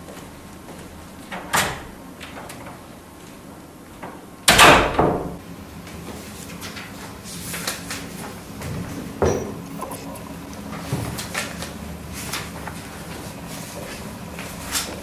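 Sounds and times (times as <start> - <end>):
wooden door banging shut: 1.4 - 2.0, 4.5 - 5.4.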